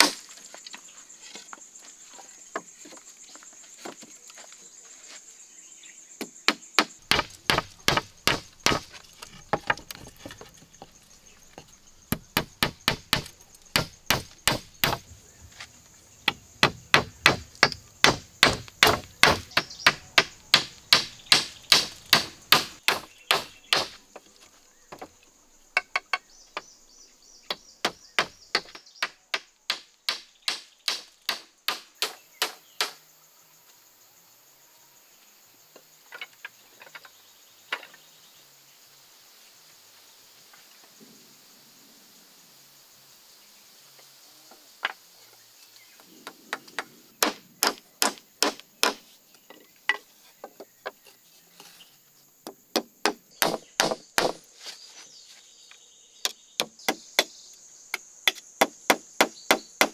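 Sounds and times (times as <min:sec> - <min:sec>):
hammer striking wooden frame: 0:06.2 - 0:10.0, 0:12.1 - 0:15.0, 0:16.3 - 0:24.0, 0:27.8 - 0:33.0, 0:47.2 - 0:49.0, 0:52.4 - 0:54.4.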